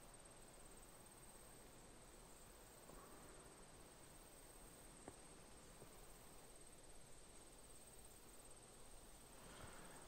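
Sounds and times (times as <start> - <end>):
faint background hiss: 0.0 - 10.0.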